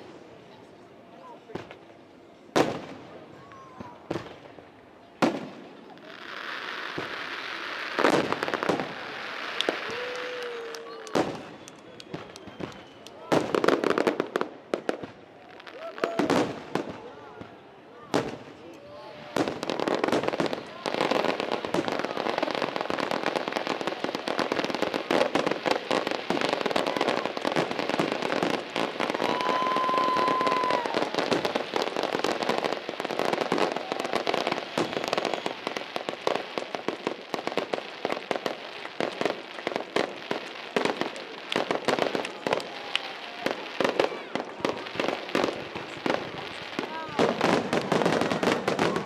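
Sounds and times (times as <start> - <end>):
fireworks bursting with crackling: 1.4 - 49.0
steady whistle: 11.5 - 13.2.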